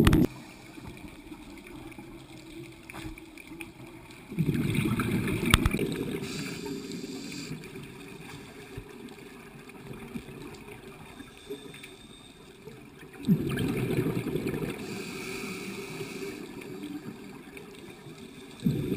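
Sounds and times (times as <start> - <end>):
regulator bubbles rumbling: 0.0 - 6.4, 12.5 - 18.9
muffled underwater ambience: 0.0 - 18.9.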